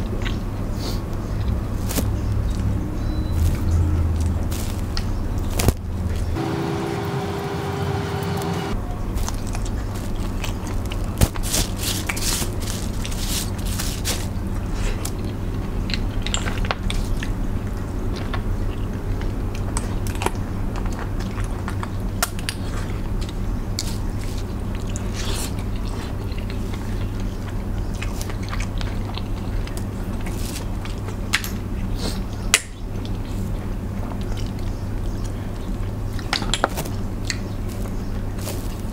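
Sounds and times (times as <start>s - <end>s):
steady low hum: 0.0s - 16.2s
biting and chewing: 0.0s - 38.9s
crab shells cracking: 9.1s - 17.1s.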